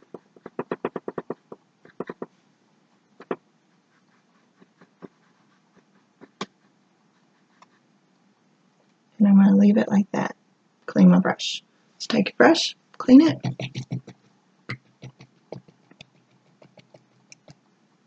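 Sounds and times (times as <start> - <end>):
paintbrush tapping on canvas: 13.4 - 17.6.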